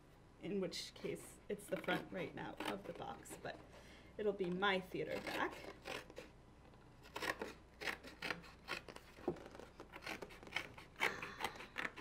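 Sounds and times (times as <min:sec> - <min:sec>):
scissors snipping cardboard: 0:05.0 - 0:06.3, 0:07.0 - 0:12.0.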